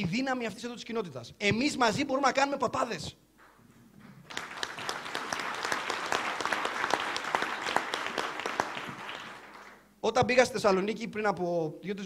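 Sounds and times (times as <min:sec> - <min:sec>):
audience applauding: 0:04.2 - 0:09.9.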